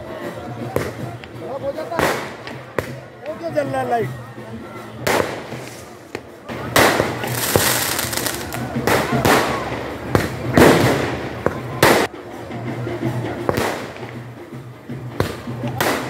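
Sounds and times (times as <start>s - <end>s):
fireworks banging: 1.9s - 3.0s, 5.0s - 12.1s
crackling sparkle: 6.8s - 8.6s.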